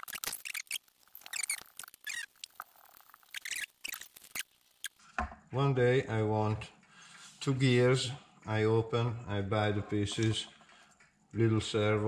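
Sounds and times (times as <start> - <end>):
short plastic squeaks: 0.0 - 2.6, 3.2 - 5.0.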